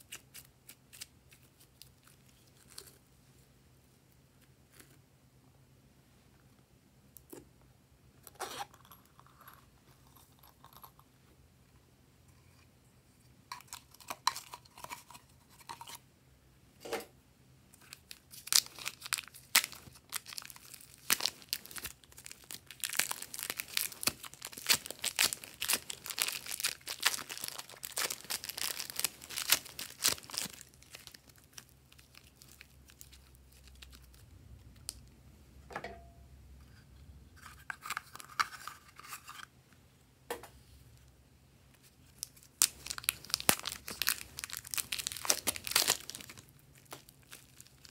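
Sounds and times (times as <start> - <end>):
plastic wrapping crinkling: 17.8 - 34.2, 42.0 - 47.9.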